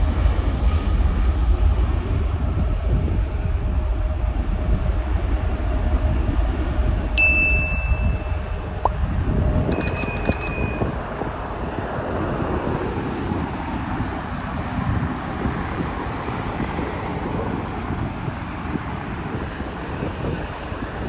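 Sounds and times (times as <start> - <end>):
jet engine noise: 0.0 - 21.0
wind buffeting microphone: 0.9 - 21.0
short high ding: 7.2 - 8.8, 9.7 - 10.9.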